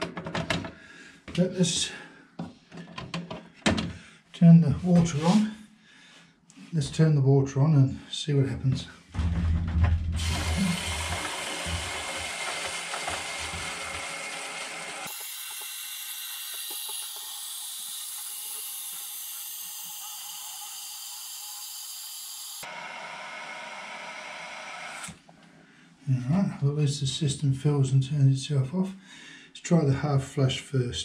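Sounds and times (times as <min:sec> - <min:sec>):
toilet fill valve hissing: 0:10.2 - 0:22.7.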